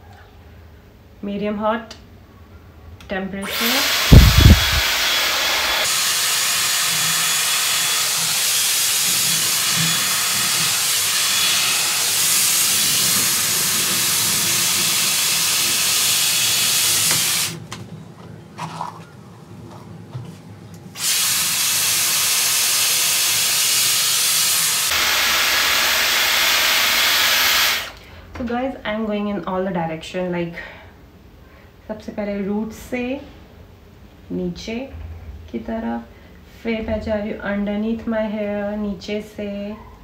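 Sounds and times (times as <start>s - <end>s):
hair styler blowing hot air: 3.4s - 17.6s, 21.0s - 28.0s.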